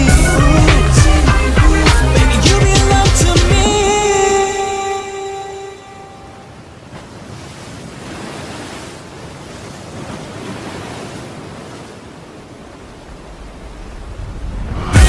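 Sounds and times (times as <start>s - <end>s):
background music: 0.0s - 6.4s, 14.5s - 15.0s
rushing surf-like noise: 5.8s - 15.0s.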